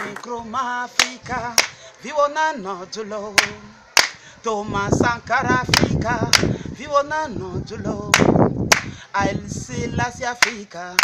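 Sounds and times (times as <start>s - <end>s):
voices singing chant-like song: 0.0s - 8.5s
sharp claps: 8.2s - 8.9s, 10.4s - 10.6s.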